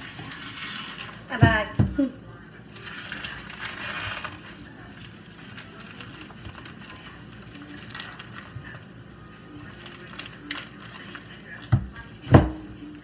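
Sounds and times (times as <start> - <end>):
plastic bag crinkling: 2.7 - 8.8, 9.6 - 11.7.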